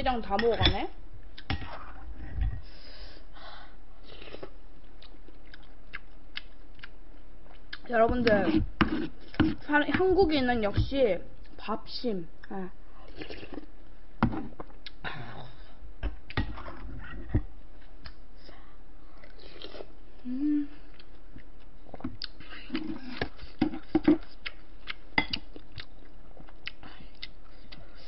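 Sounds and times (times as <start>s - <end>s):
person chewing food: 4.0s - 9.6s, 13.0s - 13.7s, 14.4s - 15.0s, 19.1s - 28.0s
person humming: 20.2s - 20.9s.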